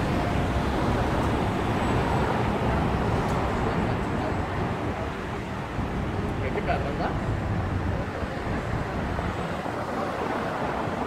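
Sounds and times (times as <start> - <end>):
road traffic rumble: 0.0 - 11.0.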